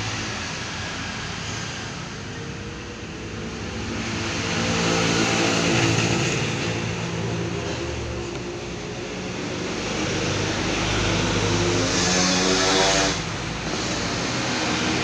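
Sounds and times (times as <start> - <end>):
steady engine hum: 0.0 - 15.0
small motorcycle passing: 10.0 - 15.0.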